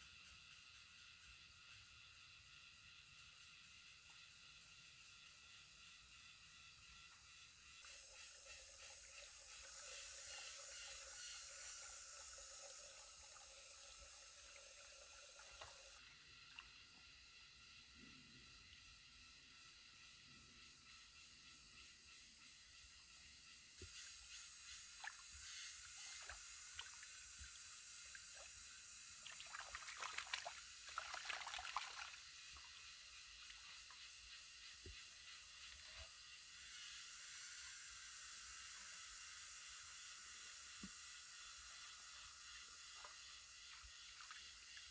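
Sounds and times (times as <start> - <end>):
steady high hiss: 0.0 - 44.9
stream trickling over stones: 26.0 - 32.4.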